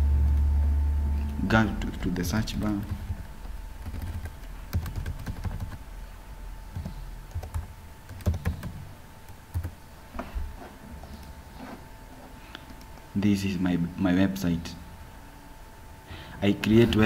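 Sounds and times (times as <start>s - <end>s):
typing on computer keyboard: 2.8s - 5.8s, 6.8s - 8.8s, 9.5s - 9.7s.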